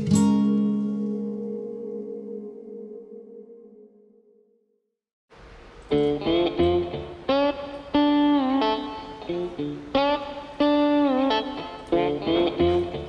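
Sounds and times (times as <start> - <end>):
plucked guitar phrase: 0.0 - 4.0, 5.9 - 13.0
low bass note: 0.8 - 4.4.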